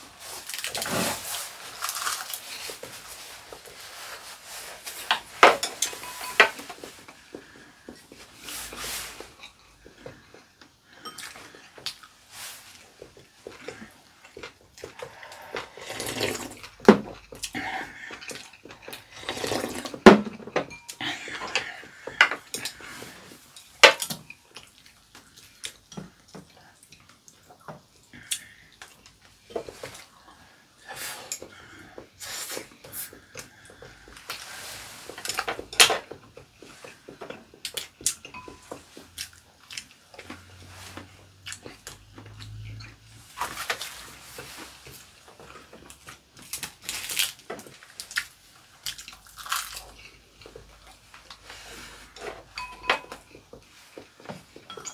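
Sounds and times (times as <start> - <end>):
utensils clinking on ceramic bowls: 5.0 - 7.0, 11.0 - 11.6, 18.1 - 22.8, 37.6 - 39.3, 52.2 - 53.6, 54.6 - 54.9
soup slurping: 15.1 - 16.7.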